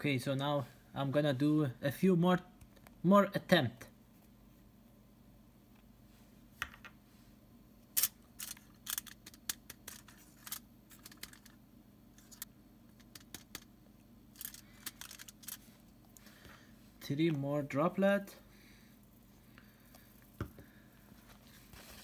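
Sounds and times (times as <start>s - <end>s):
aluminium foil crinkling: 8.0s - 11.6s, 14.3s - 15.8s.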